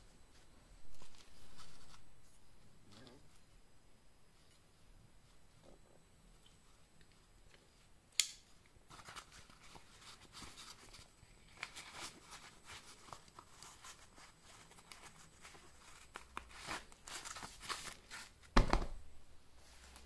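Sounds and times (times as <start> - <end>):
nylon sheath rustling and scraping: 0.2 - 3.5, 8.9 - 18.7
sheath thump on table: 18.6 - 19.0.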